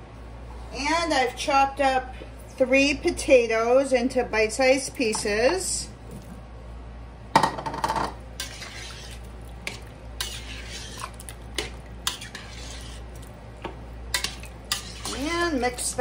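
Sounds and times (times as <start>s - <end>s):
metal spoon stirring in pot: 8.4s - 16.0s.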